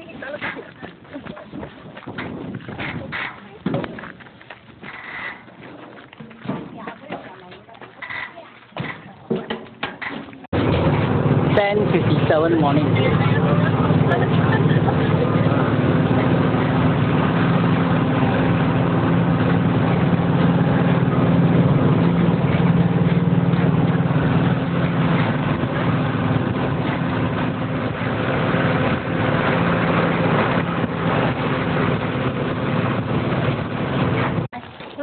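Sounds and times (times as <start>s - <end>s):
road noise: 0.0s - 35.0s
vehicle engine droning: 10.5s - 34.6s.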